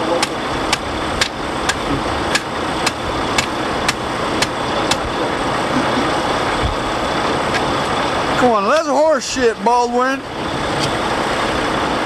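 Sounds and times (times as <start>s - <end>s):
engine-like drone: 0.0s - 12.0s
sharp metal clicks of hand tool: 0.2s - 5.1s.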